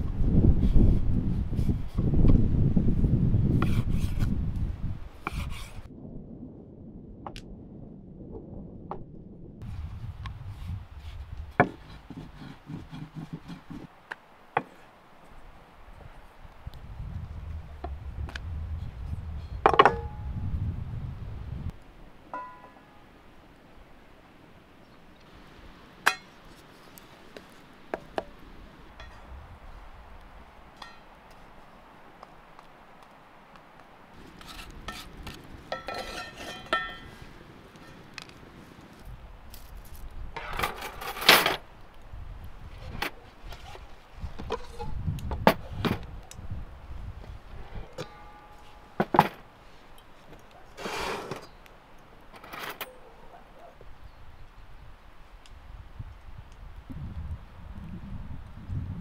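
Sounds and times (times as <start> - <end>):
frying pan ringing clink: 22.3 - 22.8.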